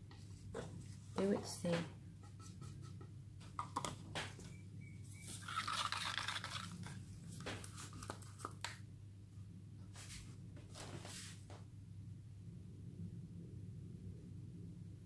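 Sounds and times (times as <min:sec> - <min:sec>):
plastic cups clicking: 0:02.7 - 0:04.4, 0:05.3 - 0:07.0.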